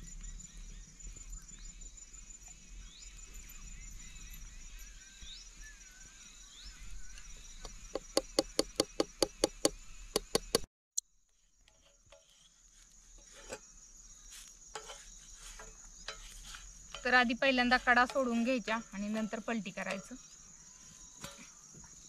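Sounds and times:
crickets chirring: 0.0s - 22.0s
rapid sharp knocks: 7.9s - 10.7s.

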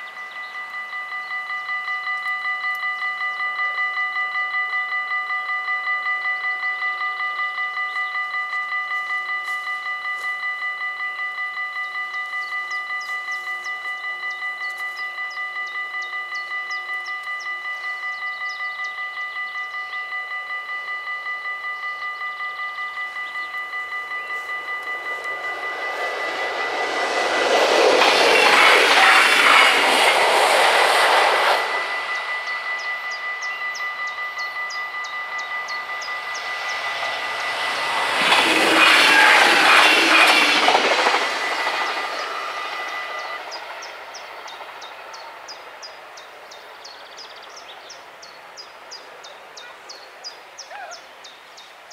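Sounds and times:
level-crossing bells ringing: 0.0s - 45.4s
train wheels rushing on rail: 22.9s - 49.2s.

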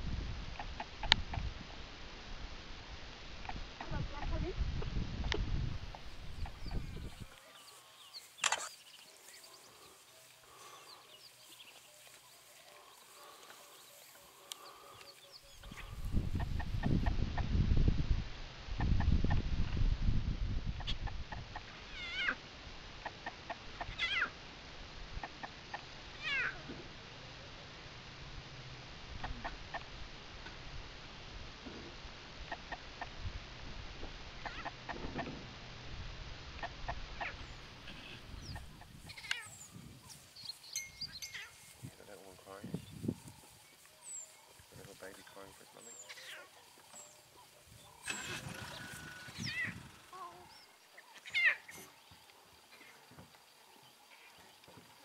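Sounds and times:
noisy rustle: 0.0s - 55.0s
lion cub mewing: 21.9s - 22.4s, 23.8s - 24.3s, 46.0s - 46.7s, 47.8s - 50.6s.

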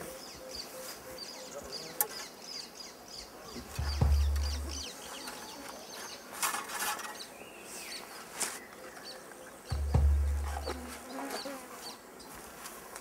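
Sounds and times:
birds chirping: 0.0s - 13.0s
loud low thud and rumble: 9.8s - 10.7s.

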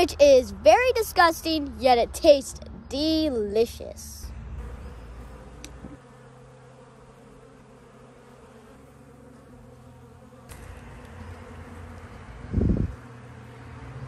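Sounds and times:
bees buzzing: 0.0s - 14.0s
small click: 5.6s - 5.8s.

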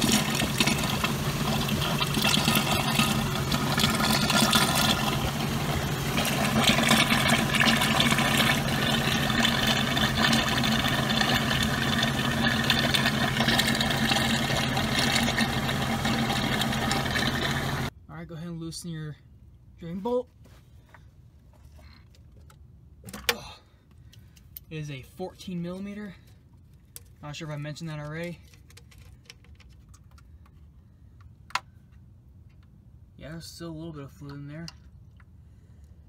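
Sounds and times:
fluid churning and bubbling in bucket: 0.0s - 17.9s
engine idling hum: 0.0s - 18.0s.

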